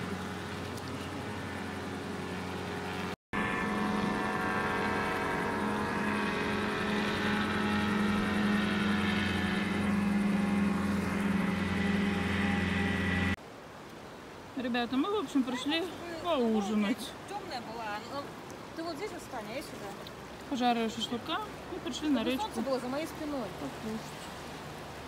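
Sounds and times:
paraglider motor buzzing: 0.0s - 13.4s.

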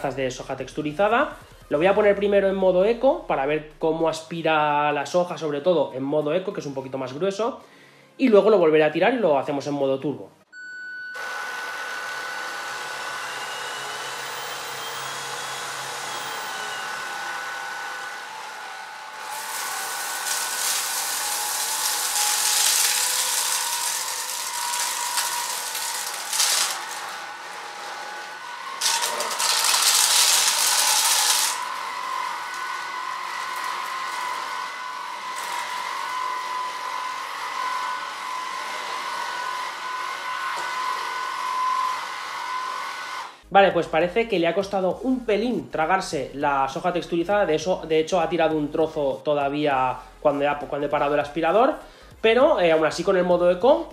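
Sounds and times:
vacuum motor whine: 10.6s - 43.5s
vacuum sucking up debris: 11.2s - 43.2s.

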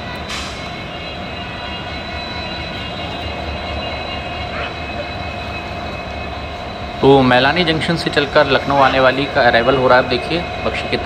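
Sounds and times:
high whine: 0.0s - 11.0s
locomotive engine low rumble: 0.0s - 11.0s.

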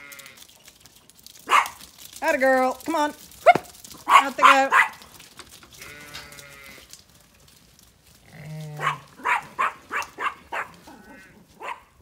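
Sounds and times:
sheep bleating: 0.0s - 0.4s, 5.8s - 7.0s, 10.8s - 11.5s
dog barking: 1.4s - 1.8s, 3.4s - 5.0s, 8.8s - 12.0s.

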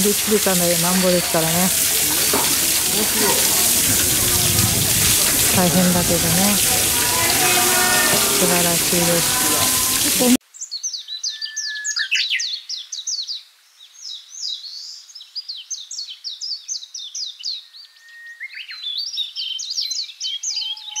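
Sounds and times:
songbirds chirping: 0.0s - 11.7s.

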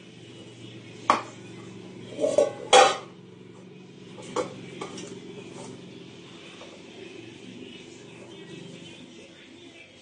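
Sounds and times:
steel bowls clanking: 2.1s - 3.2s.

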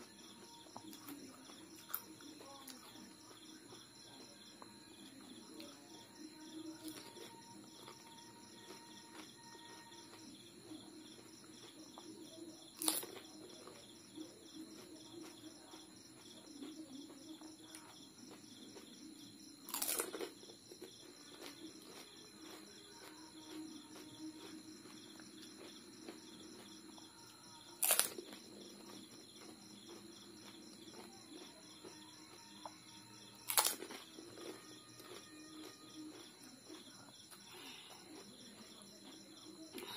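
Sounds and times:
insects chirping: 0.0s - 39.9s
loud crunching bites: 12.8s - 13.2s, 19.7s - 20.4s, 27.8s - 28.4s, 33.5s - 35.2s.

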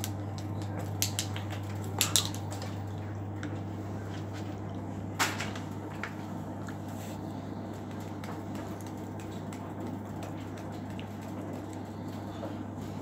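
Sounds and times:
washing machine humming: 0.0s - 13.0s.

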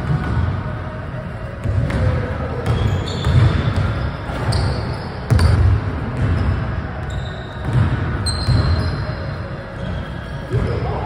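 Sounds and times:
sneaker squeaks: 1.6s - 11.0s
basketball bouncing on wooden floor: 5.3s - 6.5s, 7.6s - 8.8s.

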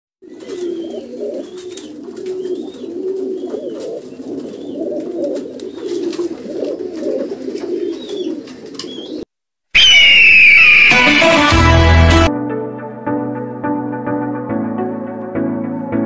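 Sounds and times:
pigeons cooing: 0.2s - 11.0s
loud music: 9.8s - 13.4s.

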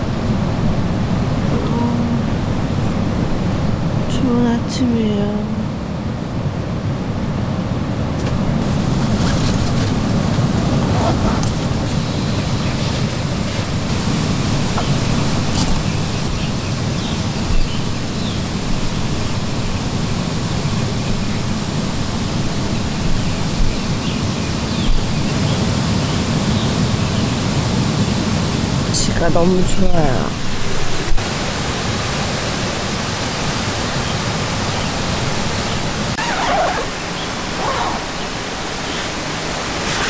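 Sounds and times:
stream rushing: 0.0s - 40.0s.

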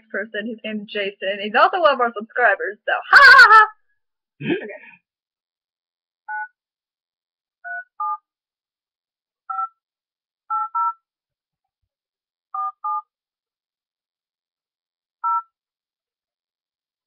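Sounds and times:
touch-tone beeps: 15.2s - 15.5s.

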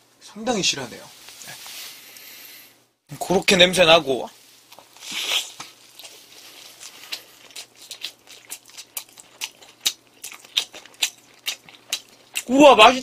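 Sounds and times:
person biting and chewing food: 4.6s - 12.5s
sharp mouth clicks and smacks: 6.9s - 12.5s.

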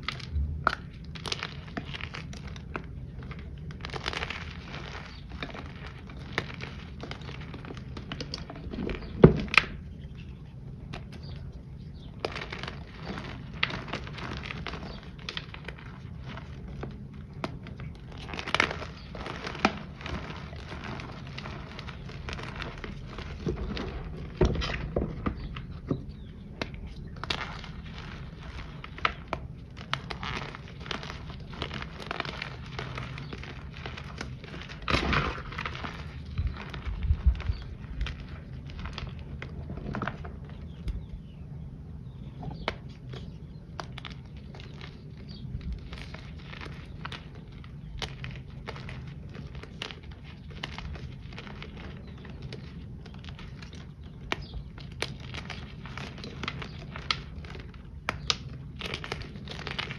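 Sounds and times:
dry powder chunks crunching: 0.0s - 41.4s, 42.0s - 59.9s.

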